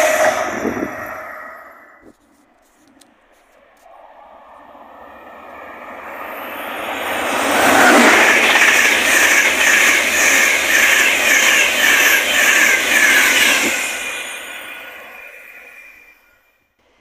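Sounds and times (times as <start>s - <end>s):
train passing at speed: 0.0s - 17.0s
wheels on rails beating: 2.0s - 15.2s.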